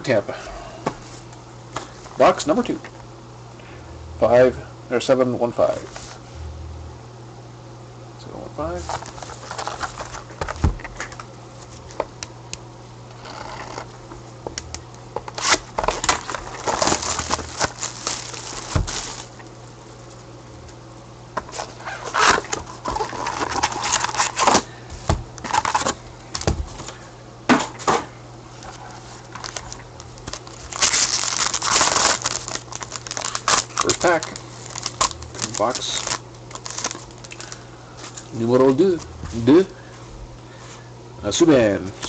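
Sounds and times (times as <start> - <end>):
low electrical hum: 0.0 - 42.0
plastic wrap crinkling: 8.8 - 11.2, 15.3 - 19.5, 28.5 - 39.7.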